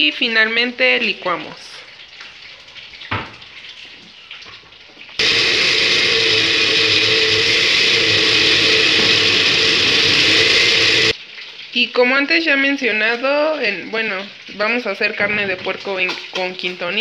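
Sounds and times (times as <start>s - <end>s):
blender motor running: 5.2s - 11.2s.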